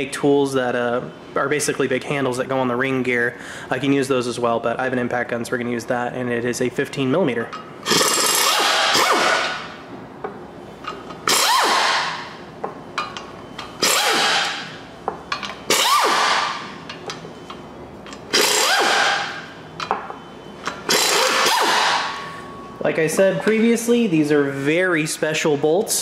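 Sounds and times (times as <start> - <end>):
impact wrench hammering: 7.8 - 9.7, 10.8 - 17.2, 18.1 - 22.3.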